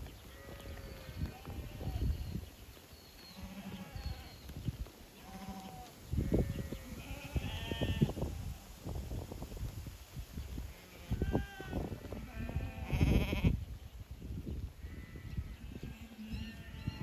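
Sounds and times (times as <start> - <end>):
hooves trampling on ground: 0.0 - 16.0
lambs bleating: 0.4 - 2.1, 3.3 - 4.3, 5.2 - 8.1, 10.7 - 13.6.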